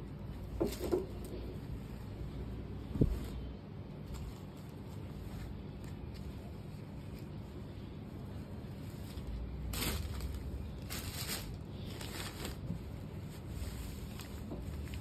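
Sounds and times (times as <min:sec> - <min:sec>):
low steady hum: 0:00.0 - 0:15.0
cloth rustling: 0:00.3 - 0:15.0.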